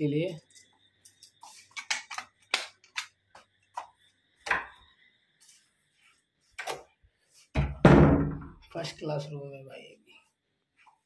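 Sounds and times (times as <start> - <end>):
faint high whine: 0.0 - 7.7.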